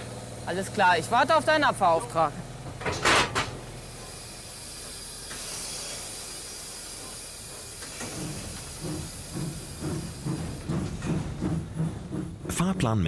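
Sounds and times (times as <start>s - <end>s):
steam locomotive hissing: 3.3s - 13.0s
low rhythmic train beat: 6.1s - 13.0s.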